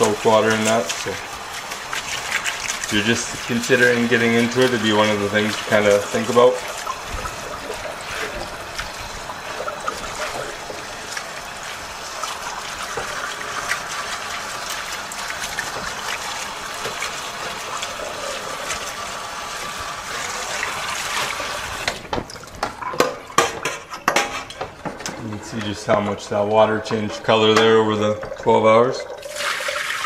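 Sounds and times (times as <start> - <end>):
water running from hose: 0.0 - 23.5, 24.1 - 30.0
sharp knocks and clatters: 21.8 - 25.4.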